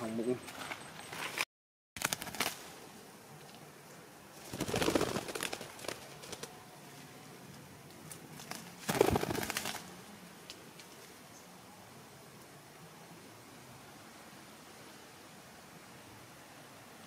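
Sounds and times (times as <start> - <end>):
leaves and twigs rustling: 0.0 - 1.4, 2.0 - 11.6.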